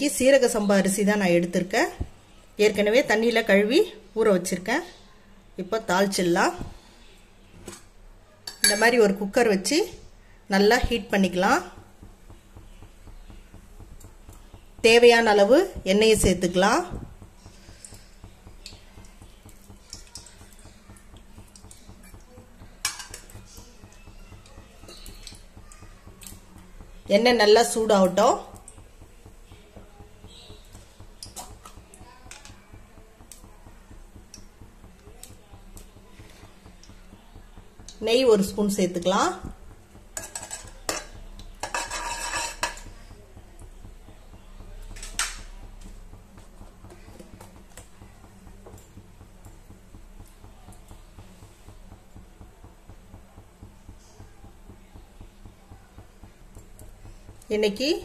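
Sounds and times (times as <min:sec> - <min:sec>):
cooking oil ticking and crackling: 0:00.0 - 0:58.0
low steady hum: 0:00.0 - 0:58.0
spoon scraping metal pot: 0:40.1 - 0:43.1.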